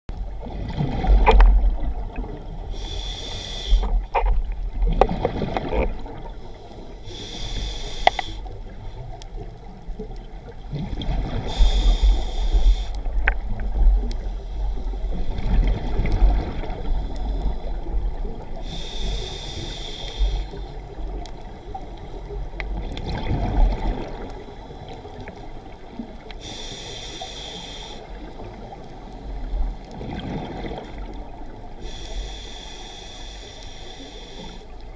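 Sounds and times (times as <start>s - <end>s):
low rumble of water: 0.1s - 34.9s
underwater bubbling: 0.1s - 34.9s
scuba regulator hissing: 2.8s - 3.9s, 7.1s - 8.4s, 11.5s - 13.0s, 18.7s - 20.5s, 26.4s - 28.1s.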